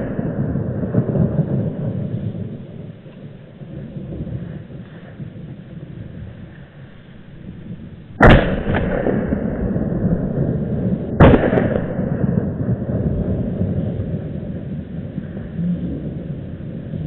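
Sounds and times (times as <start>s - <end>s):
gunshots with echo: 8.2s - 13.0s.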